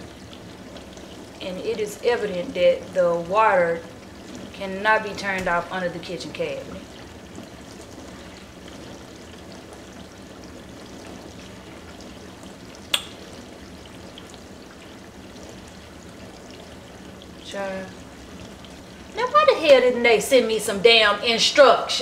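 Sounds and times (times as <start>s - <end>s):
sharp click: 12.9s - 13.1s.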